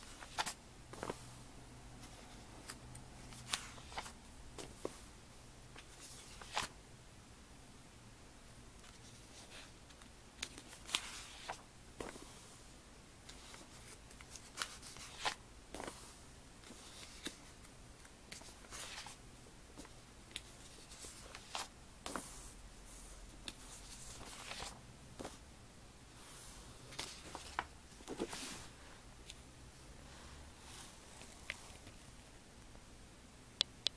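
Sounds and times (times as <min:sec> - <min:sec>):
catalog pages turning: 0:00.0 - 0:01.2, 0:02.0 - 0:05.0, 0:05.8 - 0:06.7, 0:08.8 - 0:12.3, 0:13.3 - 0:16.0, 0:16.6 - 0:19.2, 0:19.8 - 0:22.4, 0:23.5 - 0:25.4, 0:26.9 - 0:28.8.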